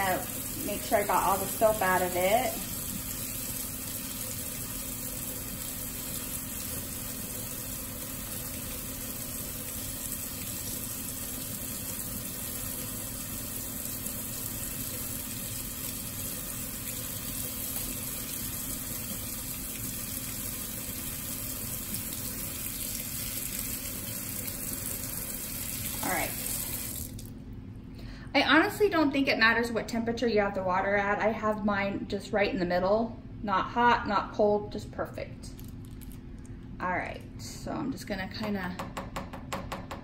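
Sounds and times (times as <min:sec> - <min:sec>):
faucet sprayer water splashing into sink: 0:00.0 - 0:27.3.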